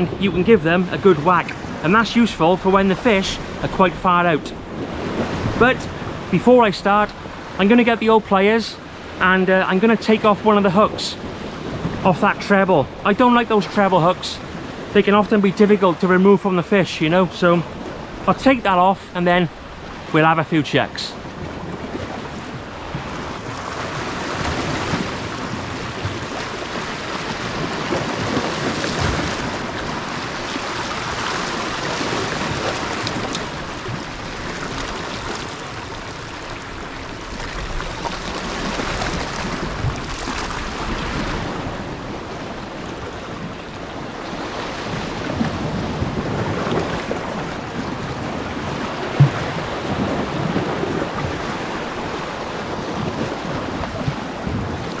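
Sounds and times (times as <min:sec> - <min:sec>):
waves washing against rocks: 0:00.0 - 0:55.0
wind on microphone: 0:21.2 - 0:55.0.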